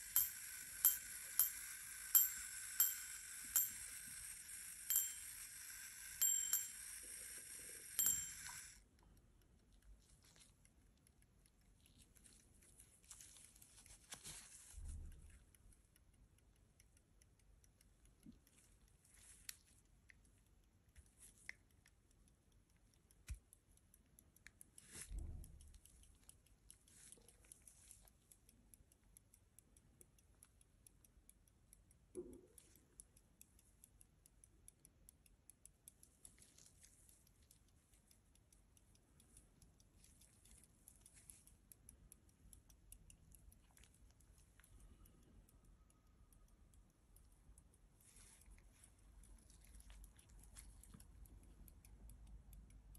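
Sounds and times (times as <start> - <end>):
pocket watch ticking: 0.0 - 52.9.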